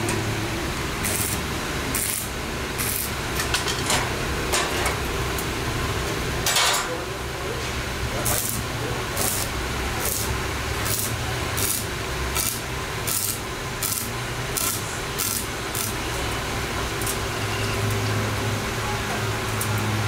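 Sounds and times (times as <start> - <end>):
welding arc crackling: 0.0 - 3.4, 8.0 - 20.0.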